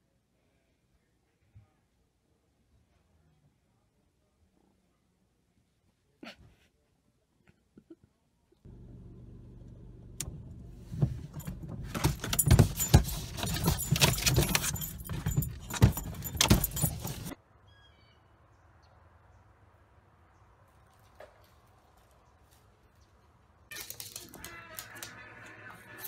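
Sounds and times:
car engine hum: 8.7s - 17.3s
metallic jangling and rattling: 10.9s - 17.4s.

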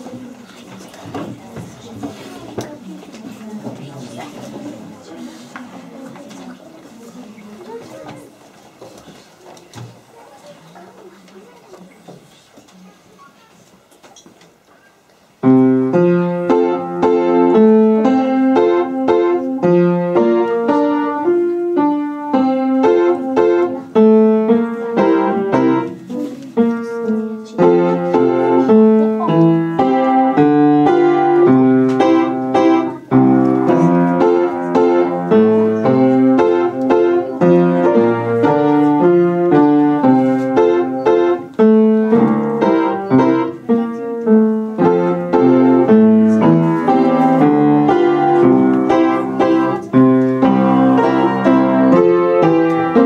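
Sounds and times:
child playing upright piano: 15.4s - 53.0s.

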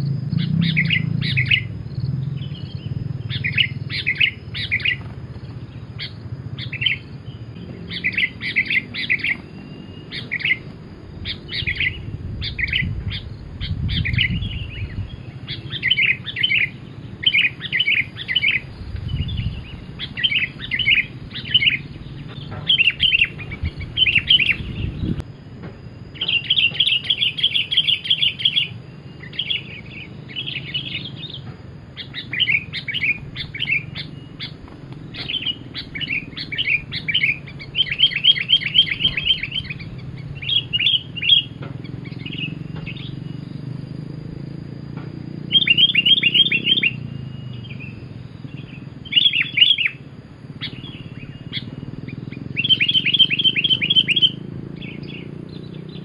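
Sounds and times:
bird chattering notes: 0.3s - 25.2s, 26.2s - 31.4s, 32.0s - 43.3s, 50.6s - 56.0s
bird rattling trills: 0.4s - 25.2s, 32.0s - 43.3s, 48.4s - 56.0s.

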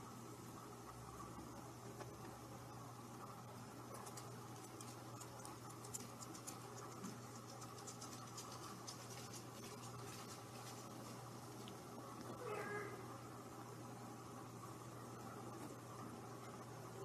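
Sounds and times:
steady low hum: 0.0s - 17.0s
kitten scratching toy: 4.0s - 11.0s.

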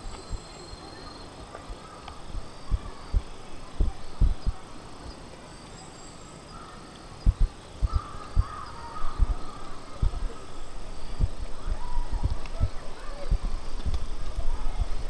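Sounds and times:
faint bird call: 5.8s - 13.8s.

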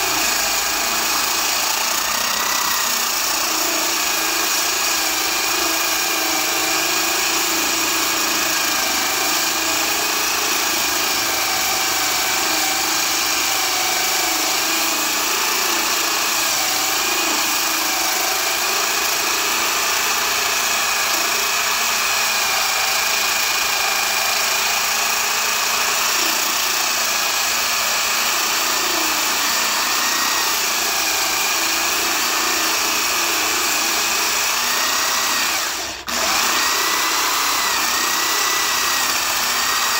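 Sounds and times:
core drill motor whine: 0.0s - 39.9s.

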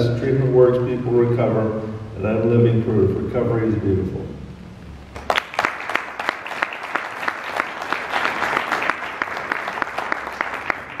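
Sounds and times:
audience applauding: 5.1s - 11.0s
person's sharp claps: 5.1s - 11.0s.

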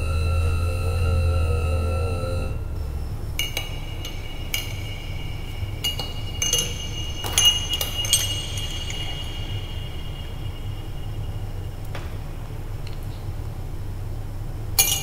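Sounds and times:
spoons clinking in glasses: 3.4s - 11.6s, 14.8s - 15.0s.

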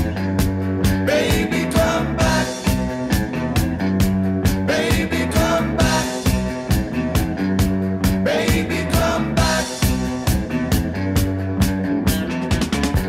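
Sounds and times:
music with drum beat and bass: 0.0s - 13.0s.

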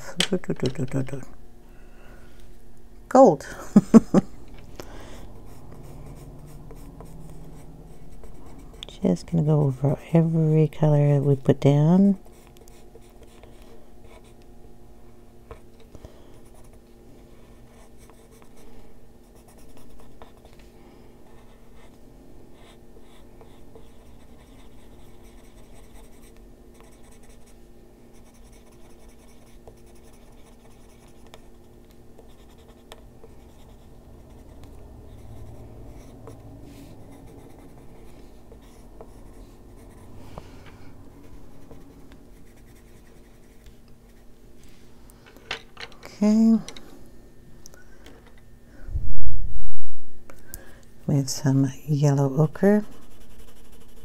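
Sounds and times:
steady low hum: 0.0s - 54.0s
pencil scratching on paper: 5.4s - 10.4s, 12.2s - 14.4s, 16.4s - 16.8s, 17.5s - 18.6s, 19.2s - 20.6s, 22.6s - 40.1s, 41.3s - 44.3s, 52.5s - 54.0s.

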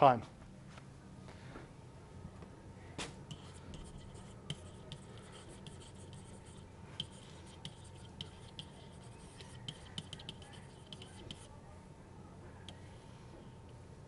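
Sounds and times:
low steady hum: 0.0s - 14.0s
stylus tapping on tablet: 7.0s - 11.4s.

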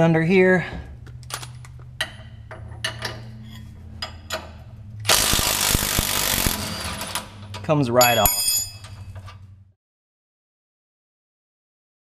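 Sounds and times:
impact wrench hammering: 5.1s - 7.1s.

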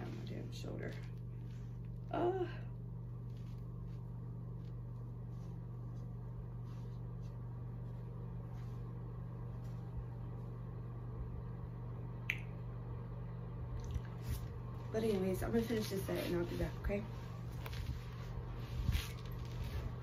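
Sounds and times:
steady low hum: 0.0s - 20.0s
faint soft rustles: 3.1s - 10.6s, 14.2s - 20.0s.

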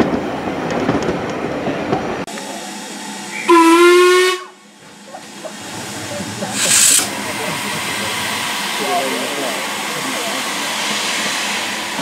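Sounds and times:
steam train running on rails: 0.0s - 12.0s
steam whistle blast: 3.3s - 4.6s.

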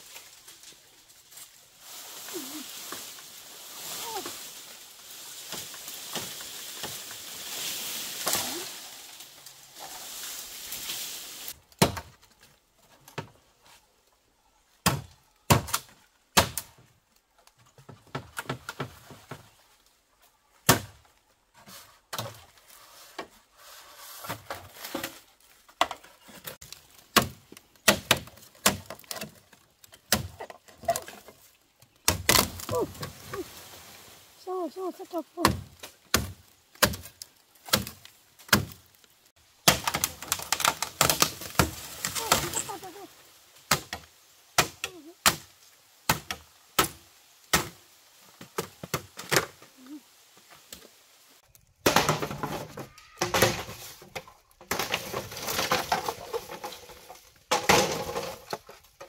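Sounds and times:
steady hiss: 1.7s - 11.6s.

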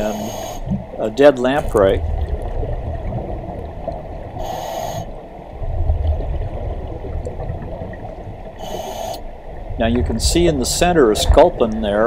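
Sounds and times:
regulator air hiss: 0.0s - 0.8s, 4.4s - 5.2s, 8.6s - 9.3s
underwater exhaled bubbling: 1.6s - 10.3s.

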